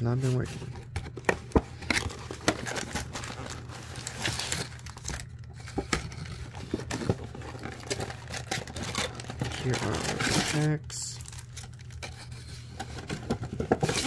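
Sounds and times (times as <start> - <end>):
wrappers rustling and crinkling: 1.9 - 12.1.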